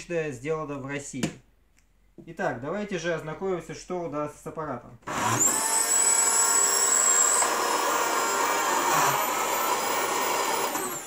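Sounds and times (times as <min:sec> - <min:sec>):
vacuum cleaner motor whine: 0:05.1 - 0:11.0.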